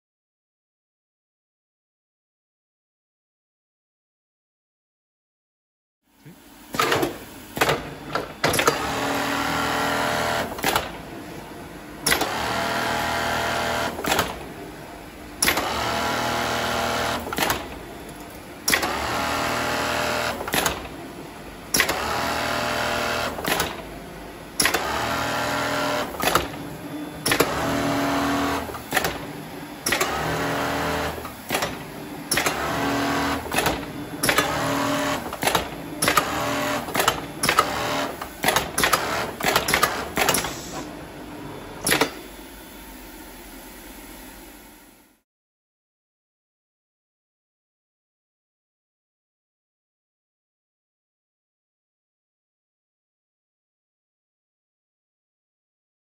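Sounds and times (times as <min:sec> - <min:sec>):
sewing machine running: 0:08.4 - 0:11.0, 0:12.0 - 0:14.5, 0:15.4 - 0:17.8, 0:18.7 - 0:21.0, 0:21.8 - 0:23.9, 0:24.6 - 0:26.6, 0:27.2 - 0:40.9.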